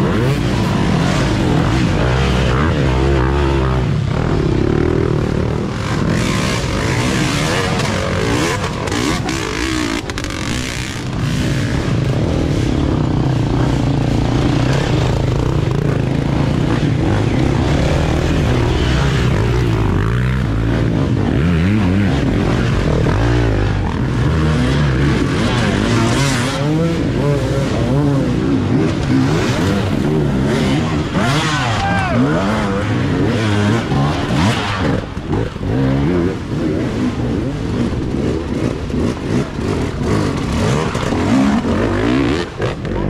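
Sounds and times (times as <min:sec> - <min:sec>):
dirt bike engines revving: 0:00.0 - 0:43.0.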